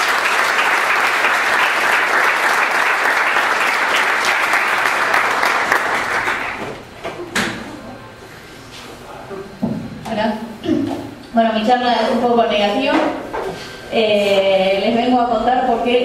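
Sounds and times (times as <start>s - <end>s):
audience applauding and cheering: 0.0s - 6.9s.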